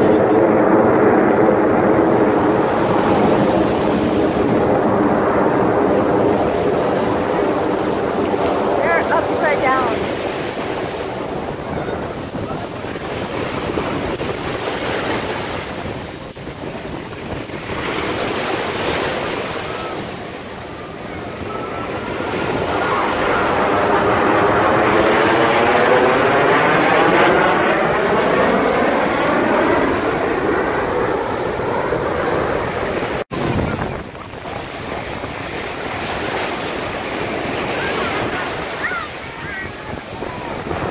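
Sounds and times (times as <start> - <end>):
jet aircraft roar: 0.0 - 40.9
surf: 0.0 - 40.9
wind on microphone: 0.0 - 40.9.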